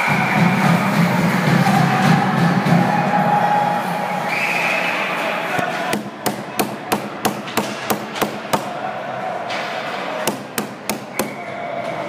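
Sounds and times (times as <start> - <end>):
hard knocks on rink boards: 5.6 - 8.8, 9.4 - 11.4.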